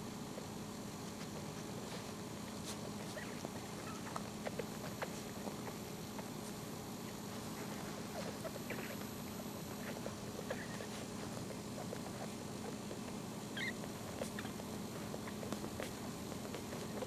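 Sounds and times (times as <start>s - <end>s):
puppies suckling clicks: 0.3s - 17.0s
puppy squeaks: 3.0s - 4.2s, 8.1s - 9.0s, 10.4s - 10.9s, 13.5s - 14.6s.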